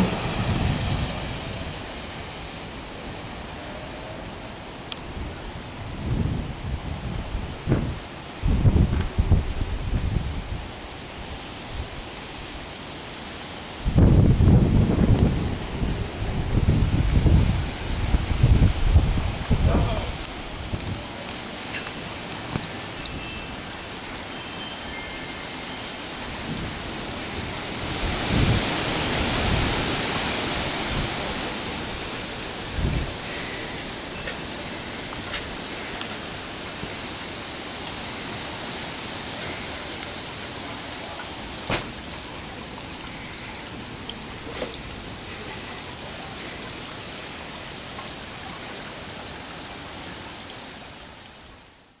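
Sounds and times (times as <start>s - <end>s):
low rumble of thunder: 0.0s - 2.2s
wind buffeting microphone: 0.0s - 2.8s, 5.0s - 12.0s, 13.8s - 23.3s, 26.2s - 35.8s
wind gusting through trees: 0.0s - 52.0s.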